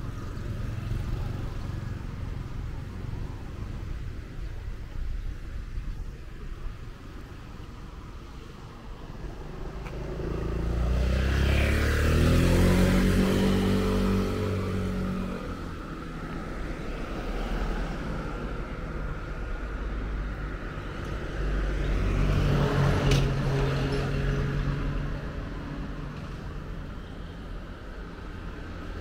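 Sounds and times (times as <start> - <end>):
steady traffic hum: 0.0 - 29.0
vehicle passing close: 9.2 - 18.5
vehicle pulling away: 9.5 - 15.8.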